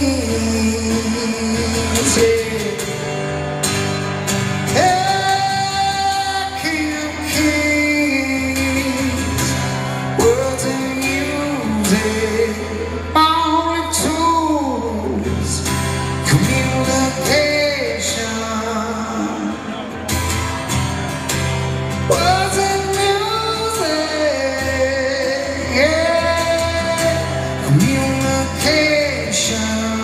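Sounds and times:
man singing: 0.0s - 3.3s, 4.6s - 20.1s, 22.0s - 30.0s
acoustic guitar: 0.0s - 30.0s.

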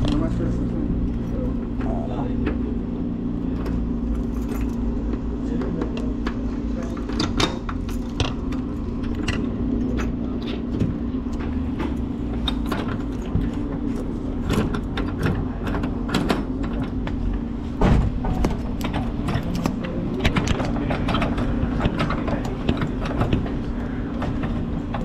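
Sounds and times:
low hum: 0.0s - 25.0s
clicks and rattles in vending machine: 3.5s - 17.2s, 18.1s - 25.0s
loud knock: 17.8s - 18.6s.

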